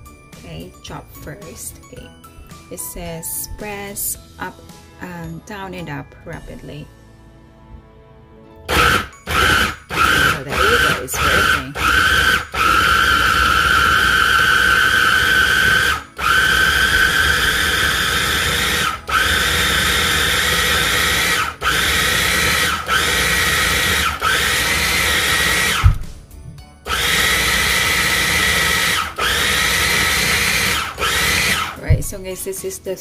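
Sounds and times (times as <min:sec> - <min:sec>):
food processor motor whining: 0:08.7 - 0:26.0, 0:26.9 - 0:32.0
thump: 0:25.8 - 0:26.2, 0:31.9 - 0:32.1.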